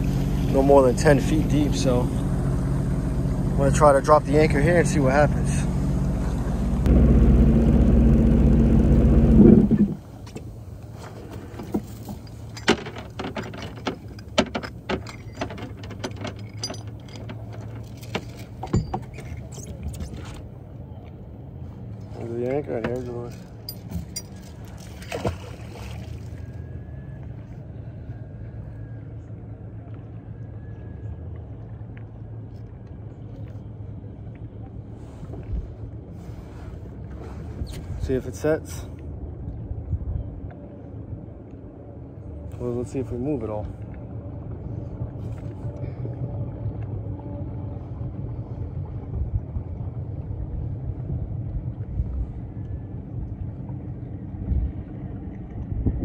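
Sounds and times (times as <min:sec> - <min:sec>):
jet ski engine running: 0:00.0 - 0:16.3
dull thump: 0:09.2 - 0:10.0
light clicks and clinks: 0:12.0 - 0:20.1.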